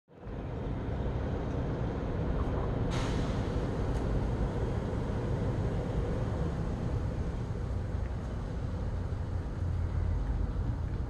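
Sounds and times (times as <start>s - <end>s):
low background rumble: 0.2s - 11.0s
short hiss: 2.9s - 3.5s.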